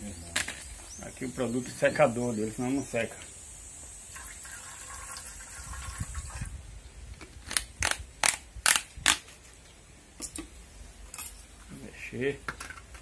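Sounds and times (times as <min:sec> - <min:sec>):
liquid trickling into bowl: 0:04.1 - 0:06.5.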